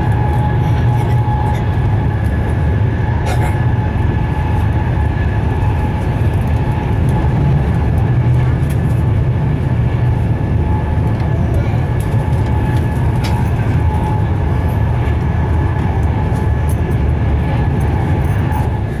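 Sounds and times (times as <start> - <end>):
rumble of wheels and rushing air: 0.0 - 19.0.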